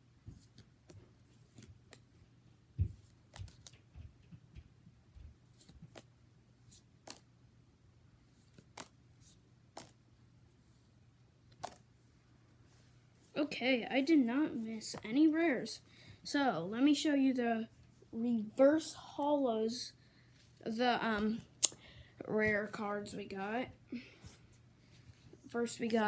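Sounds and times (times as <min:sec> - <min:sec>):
trading cards flicking: 0:03.3 - 0:03.8, 0:05.6 - 0:06.1, 0:06.7 - 0:07.3, 0:08.5 - 0:09.0, 0:09.7 - 0:10.0, 0:11.5 - 0:11.8.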